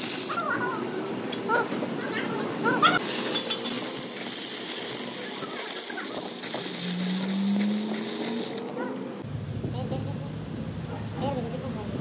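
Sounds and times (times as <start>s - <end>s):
welding arc crackling: 0.0s - 0.6s, 3.0s - 8.9s.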